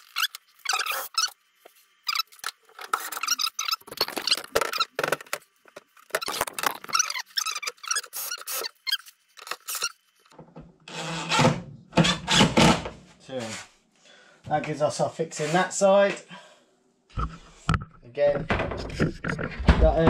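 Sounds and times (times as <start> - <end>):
freezer door squeaking and scraping: 0.0 - 1.4, 2.0 - 5.0, 6.1 - 10.0.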